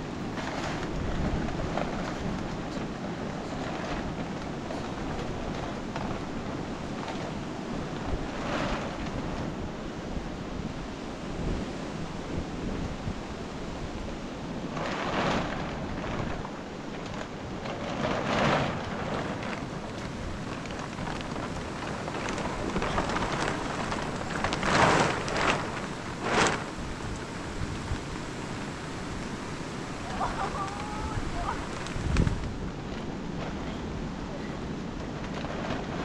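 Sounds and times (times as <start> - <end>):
plastic sheet rustling: 0.0 - 10.7, 13.9 - 36.0
rain on a plastic sheet: 0.0 - 36.0.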